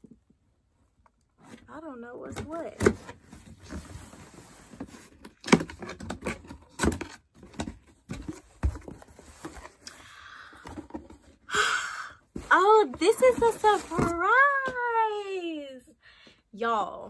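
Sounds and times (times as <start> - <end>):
cardboard and packaging rustling: 1.1 - 11.5, 12.2 - 15.4.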